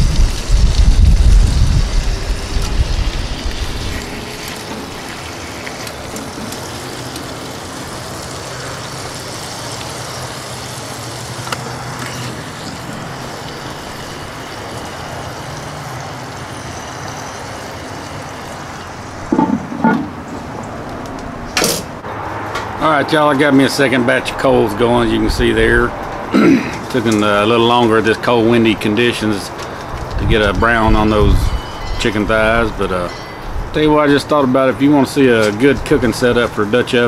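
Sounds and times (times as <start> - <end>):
wind buffeting microphone: 0.0 - 4.4, 29.9 - 34.0.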